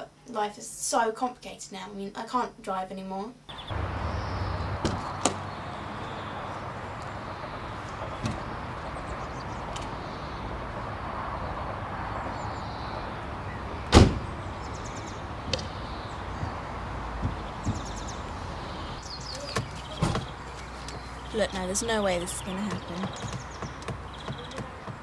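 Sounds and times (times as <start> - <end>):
outdoor background hiss: 0.0 - 25.0
car door slamming: 4.8 - 5.5, 8.1 - 8.6, 13.9 - 14.3, 15.4 - 18.4, 19.4 - 20.4.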